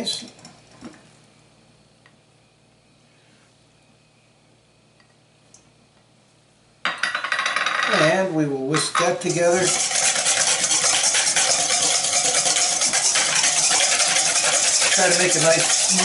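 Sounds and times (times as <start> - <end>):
whisk rattling in metal bowl: 8.8 - 16.0.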